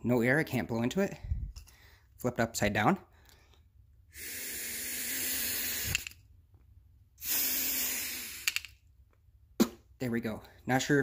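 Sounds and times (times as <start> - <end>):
air blown into carburetor hissing: 4.1 - 6.2, 7.2 - 8.7.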